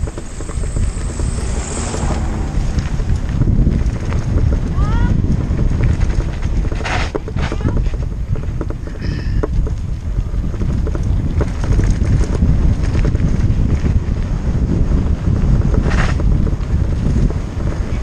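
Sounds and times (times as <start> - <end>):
tyres crunching on gravel: 0.0 - 7.5
wind buffeting microphone: 0.0 - 18.0.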